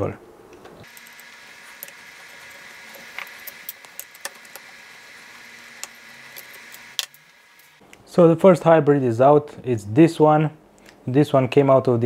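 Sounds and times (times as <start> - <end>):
screwdriver clicks and scrapes: 0.8 - 7.7.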